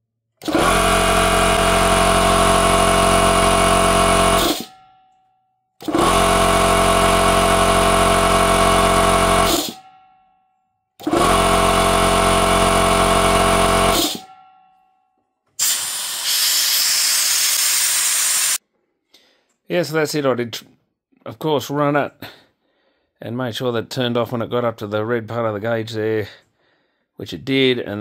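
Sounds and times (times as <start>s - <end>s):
air compressor running: 0.4s - 4.8s, 5.8s - 9.9s, 11.0s - 14.3s, 15.6s - 18.6s
compressed air hissing: 15.6s - 18.6s.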